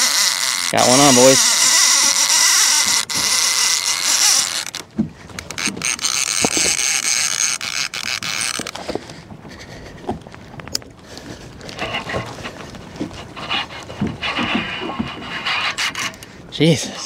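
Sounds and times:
fishing reel drag screaming: 0:00.0 - 0:04.8, 0:05.5 - 0:08.8.

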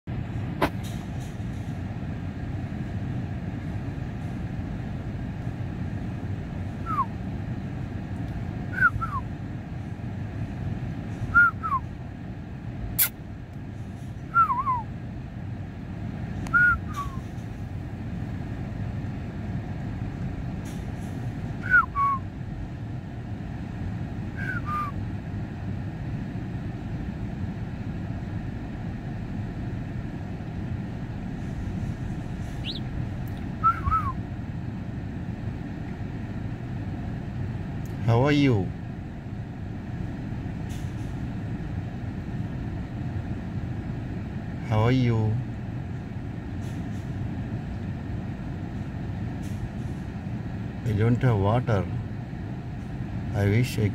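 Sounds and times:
steady low rumble: 0:00.1 - 0:53.9
whistled chirps sliding downward: 0:06.8 - 0:07.1, 0:32.6 - 0:32.8, 0:33.6 - 0:34.2.

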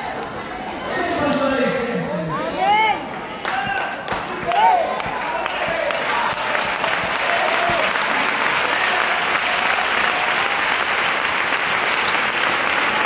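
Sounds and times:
crowd applauding: 0:03.4 - 0:13.0.

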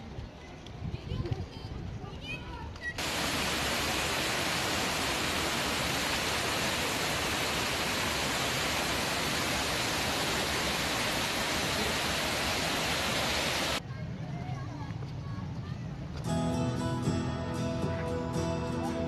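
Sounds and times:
water rushing down rock cascade: 0:03.0 - 0:13.8.

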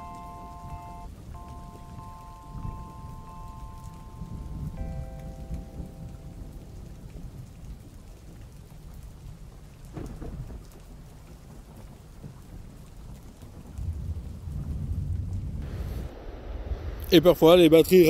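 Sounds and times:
wind rumbling on microphone: 0:00.0 - 0:18.0
faint whine: 0:15.6 - 0:18.0.

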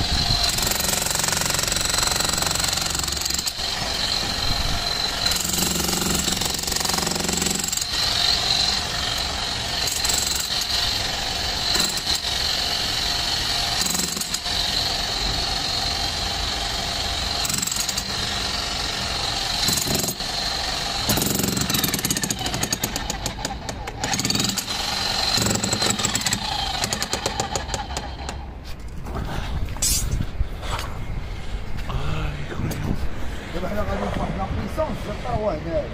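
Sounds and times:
demolition hammer chiselling concrete: 0:00.1 - 0:28.4.

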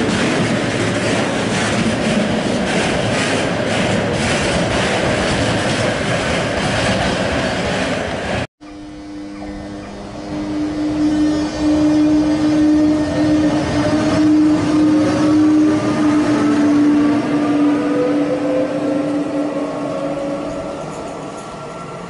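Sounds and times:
electric locomotive passing: 0:00.0 - 0:22.0
rising whine: 0:08.6 - 0:22.0.

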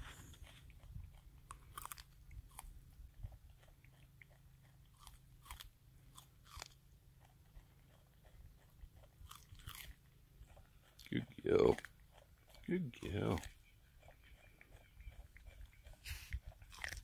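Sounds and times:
animal crunching corn kernels: 0:00.0 - 0:17.0.

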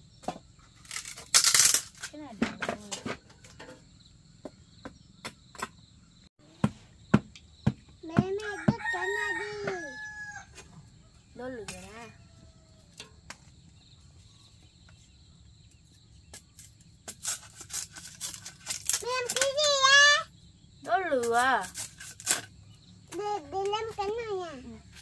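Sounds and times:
sharp knocks: 0:06.5 - 0:08.8
rooster crowing: 0:08.4 - 0:13.0.

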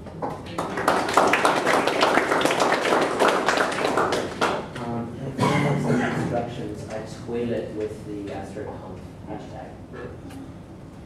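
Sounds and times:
audience applauding: 0:00.5 - 0:04.7.

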